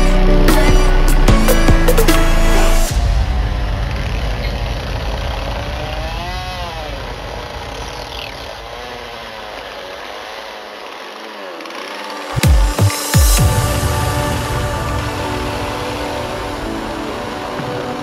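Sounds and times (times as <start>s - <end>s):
chainsaw running: 0.0s - 18.0s
sudden loud burst: 0.8s - 8.1s.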